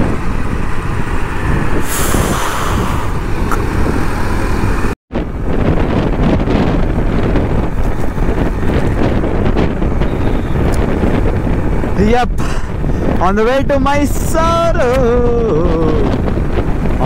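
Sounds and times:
motorcycle engine: 0:00.0 - 0:12.0
wind buffeting microphone: 0:00.0 - 0:17.0.

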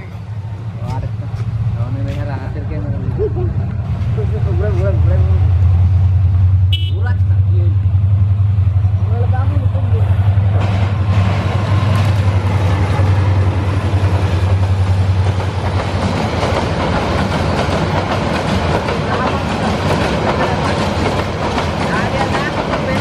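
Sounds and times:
locomotive engine drone: 0:00.0 - 0:23.0
train wheels clattering on rails: 0:10.3 - 0:23.0.

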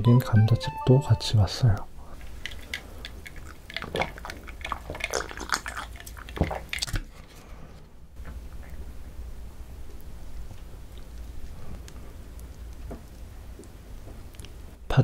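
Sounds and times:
person sipping and swallowing: 0:02.2 - 0:07.2.

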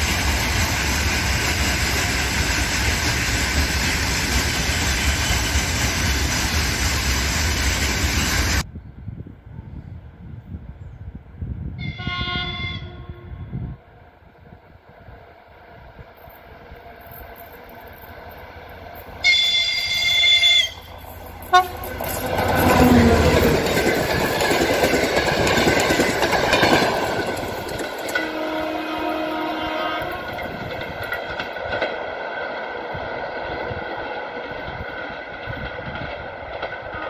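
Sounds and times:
train passing at speed: 0:00.0 - 0:37.0
locomotive horn blast: 0:11.8 - 0:13.5, 0:19.2 - 0:22.0, 0:28.2 - 0:30.5.

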